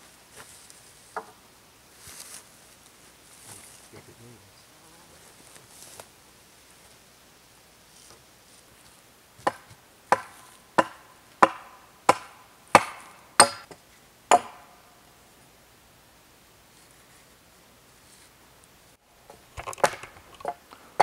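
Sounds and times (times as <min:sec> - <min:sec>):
tool striking wooden pole: 0:01.2 - 0:01.4, 0:09.4 - 0:14.8.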